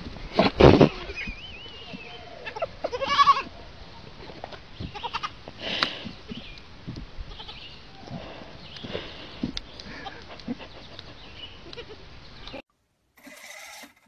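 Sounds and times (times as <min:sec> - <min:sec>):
goat kids bleating: 0:00.6 - 0:03.6, 0:04.8 - 0:05.9, 0:07.2 - 0:08.1, 0:11.6 - 0:12.0.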